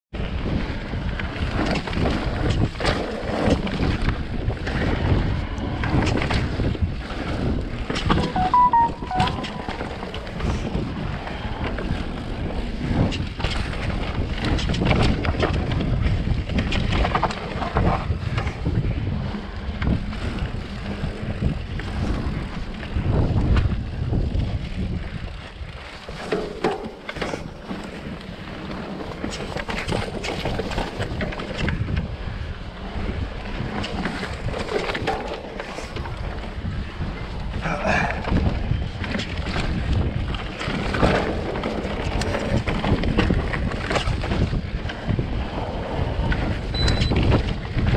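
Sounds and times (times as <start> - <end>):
wind rumbling on microphone: 0.2 - 8.2, 9.5 - 47.9
tyres rolling on dirt: 19.4 - 47.9.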